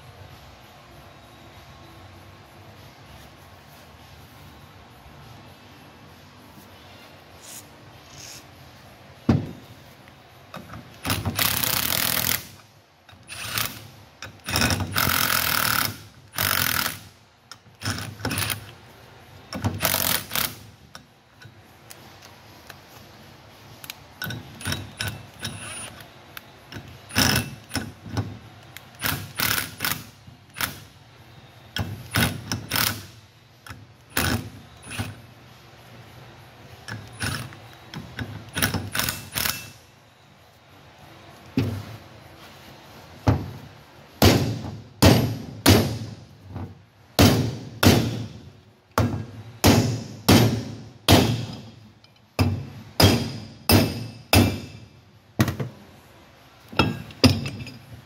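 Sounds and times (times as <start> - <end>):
impact wrench running: 10.6 - 18.7, 19.6 - 20.7, 28.9 - 30.9, 31.8 - 35.2, 38.2 - 39.8
sharp metal knocks: 44.2 - 46.2, 49.0 - 51.7, 52.4 - 55.7, 56.8 - 57.8.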